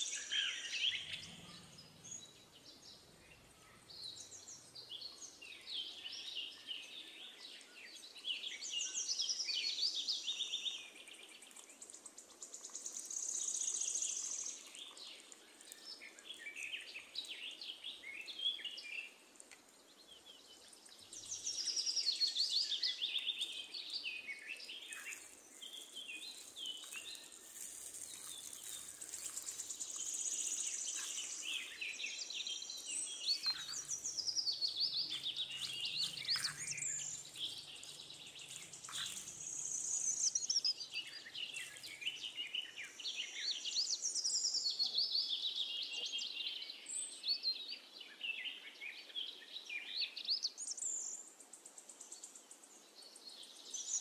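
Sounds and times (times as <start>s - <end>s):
birds chirping and singing: 0.0s - 19.2s, 19.9s - 51.2s
faint clicks: 19.4s - 19.7s.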